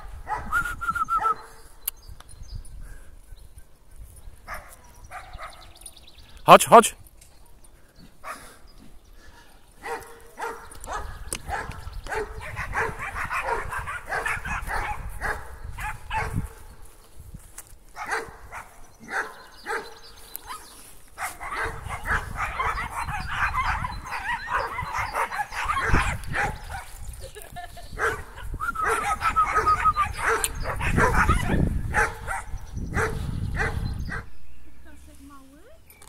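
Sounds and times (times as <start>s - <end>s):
dog barking and yipping: 0.2s - 0.5s, 4.5s - 5.7s, 9.8s - 16.6s, 18.0s - 27.0s, 28.0s - 34.3s.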